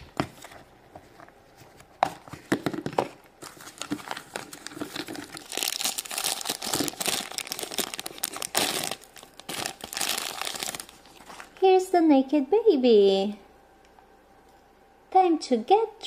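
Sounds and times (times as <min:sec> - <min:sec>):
plastic wrapping crinkling: 0:00.0 - 0:11.7.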